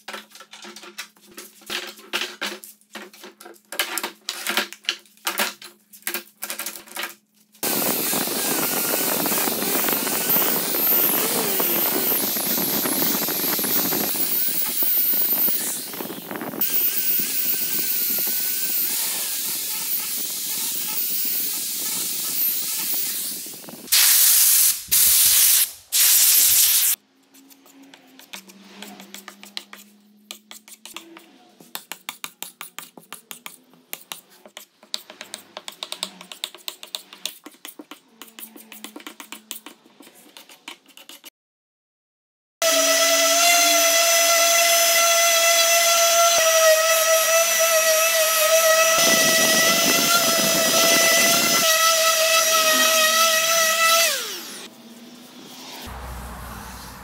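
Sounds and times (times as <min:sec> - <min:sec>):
angle grinder sanding wood: 0:07.6 - 0:23.9, 0:42.6 - 0:56.1
short bursts of hiss: 0:23.9 - 0:27.0.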